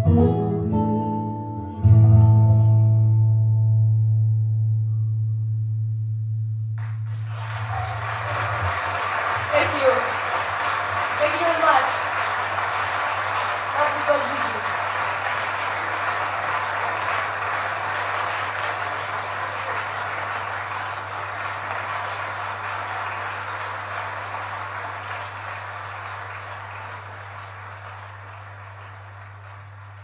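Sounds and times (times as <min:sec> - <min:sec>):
recorded applause: 0:06.8 - 0:30.0.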